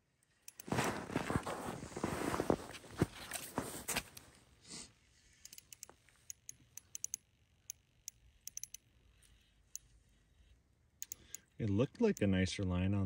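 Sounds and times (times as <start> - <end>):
short rustle: 0.6 - 4.3.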